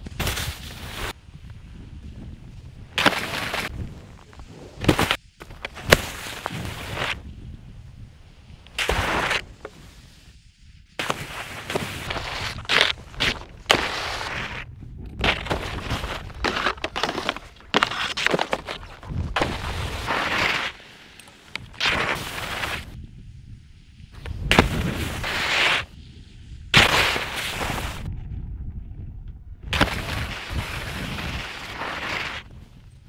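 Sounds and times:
skis scraping across snow: 0.2 - 1.2, 3.0 - 7.2, 8.8 - 10.4, 11.0 - 23.0, 24.2 - 25.9, 26.8 - 28.0, 29.8 - 32.6
low rumble: 27.9 - 29.8.

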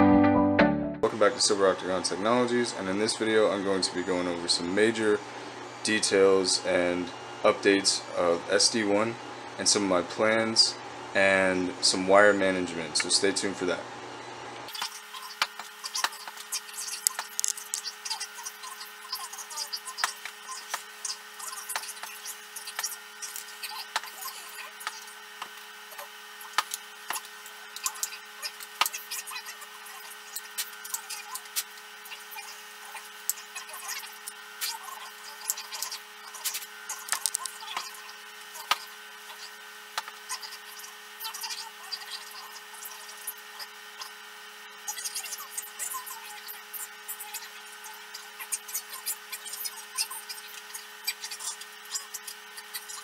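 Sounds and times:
steady electrical hum: 1.0 - 53.0
sharp clicks from handling cables: 37.1 - 37.6.

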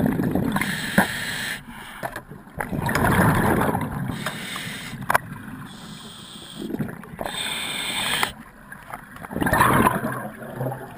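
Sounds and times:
underwater regulator bubbling: 2.6 - 8.4.

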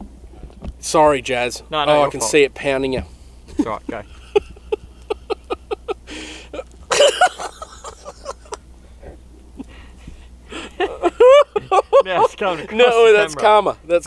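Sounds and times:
person laughing: 3.5 - 8.6, 10.5 - 12.6.

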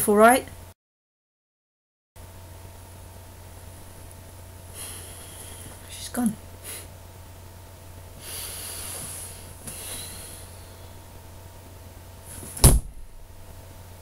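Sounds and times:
faint electrical hum: 0.0 - 0.8, 2.2 - 14.0
person breathing out through nose: 8.2 - 11.0
loud thump: 12.5 - 13.2.

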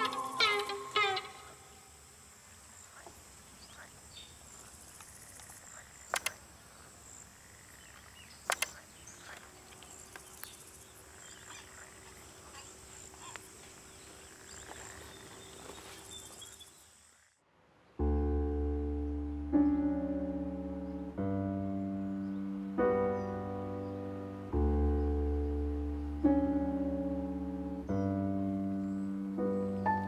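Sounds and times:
faint scattered calls: 0.0 - 17.3
insects chirping: 0.0 - 17.4
sharp double clicks: 6.1 - 6.4, 8.4 - 8.8.

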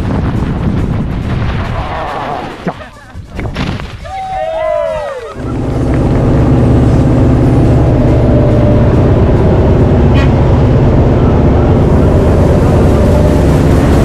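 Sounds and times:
airplane engine and propeller drone: 4.7 - 14.0.

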